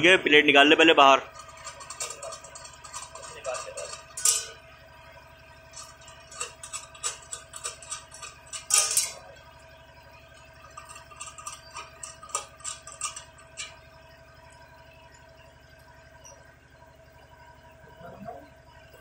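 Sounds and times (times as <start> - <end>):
loud metal clanks: 1.0 - 4.8, 5.6 - 9.6, 10.2 - 14.0
small metal clicks and clinks: 1.3 - 4.6, 5.7 - 9.3, 10.3 - 13.8.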